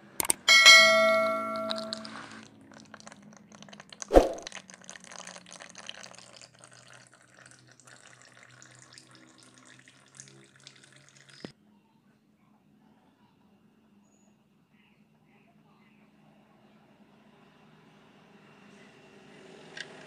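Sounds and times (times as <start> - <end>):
oil trickling into a tub: 1.7 - 11.5.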